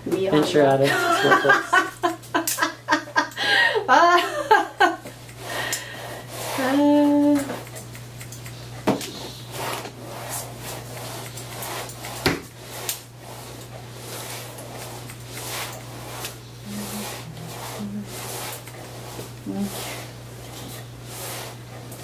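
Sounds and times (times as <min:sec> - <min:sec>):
steady low hum: 0:00.0 - 0:22.0
comb strokes: 0:04.2 - 0:22.0
scissors snipping hair: 0:07.0 - 0:09.7, 0:10.7 - 0:13.1, 0:14.4 - 0:16.4, 0:17.3 - 0:18.9.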